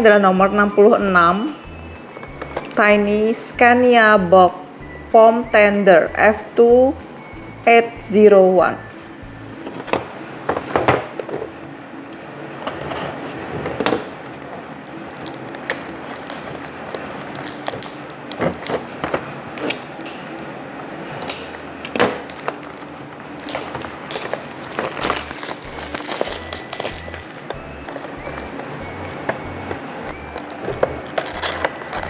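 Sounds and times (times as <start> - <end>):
plastic wrap crinkling: 14.2 - 20.2, 21.1 - 32.0
box clicks: 23.4 - 32.0.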